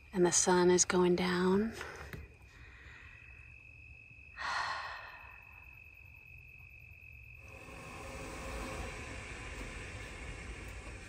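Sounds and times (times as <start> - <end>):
insects high tone: 0.0 - 11.0
breathy exhale: 1.8 - 3.5
steady hiss: 7.2 - 11.0.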